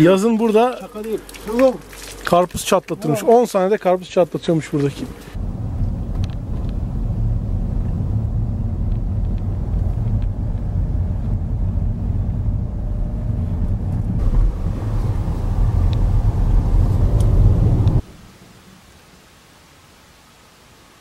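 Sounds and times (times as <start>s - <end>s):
car engine and tyre rumble: 4.6s - 18.2s.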